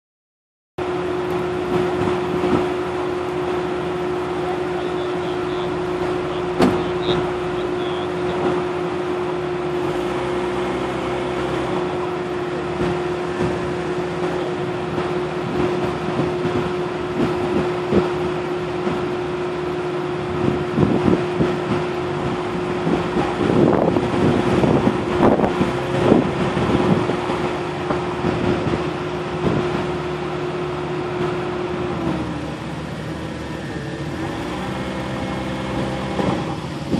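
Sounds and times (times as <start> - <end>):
vehicle engine humming: 0.8 - 36.9
vehicle knocks and rattles: 6.6 - 7.1.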